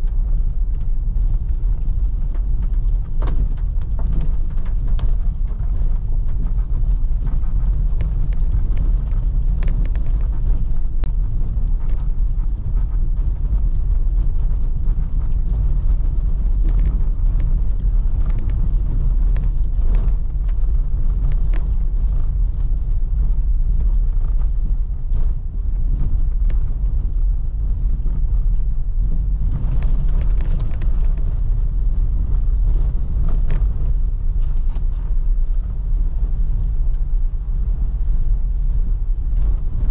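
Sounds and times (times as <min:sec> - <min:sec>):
car engine and tyres rumbling: 0:00.0 - 0:39.9.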